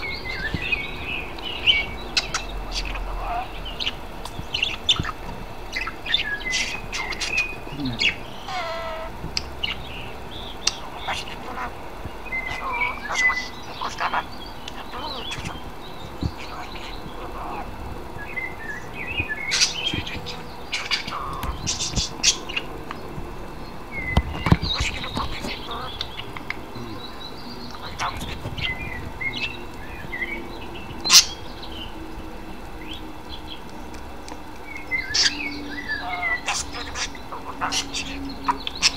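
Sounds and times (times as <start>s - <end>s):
budgerigar chirping: 0.0s - 15.6s, 24.0s - 26.3s, 27.0s - 29.6s, 34.9s - 38.9s.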